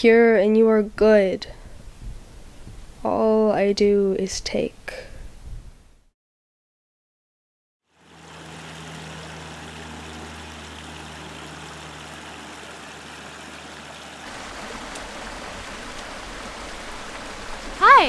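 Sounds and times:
steady low hum: 7.9s - 17.6s
creek water running over rocks: 7.9s - 18.0s.

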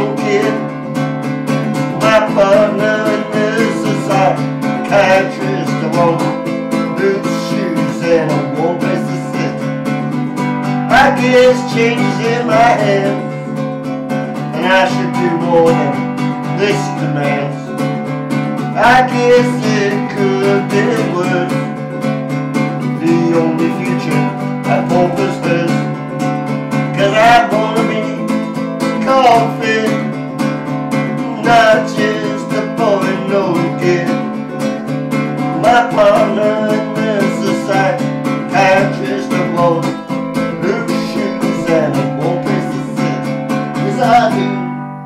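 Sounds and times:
ukulele strumming: 0.0s - 45.0s.

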